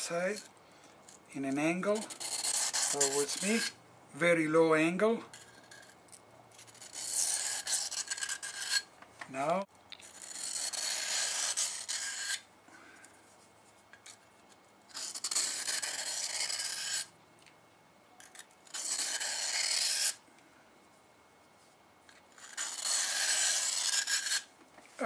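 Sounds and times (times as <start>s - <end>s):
knife scraping on sharpener: 1.7s - 3.8s, 5.3s - 6.0s, 6.6s - 8.9s, 10.0s - 12.4s, 14.9s - 17.1s, 18.2s - 20.2s, 22.1s - 24.5s.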